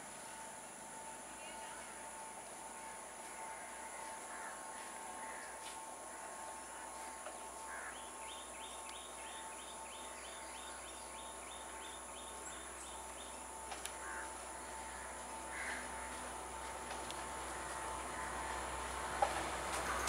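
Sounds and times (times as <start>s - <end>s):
faint high-pitched hum: 0.0s - 20.0s
crows cawing: 3.5s - 6.4s, 7.6s - 8.2s, 13.8s - 16.7s, 17.4s - 18.9s.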